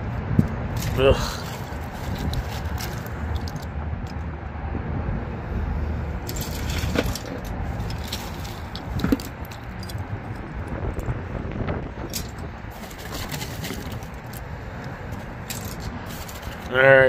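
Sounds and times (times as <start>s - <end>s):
low rumble: 0.0s - 13.0s
plastic toy parts rattling: 0.7s - 4.2s, 6.2s - 11.1s, 12.0s - 14.5s, 15.1s - 16.9s.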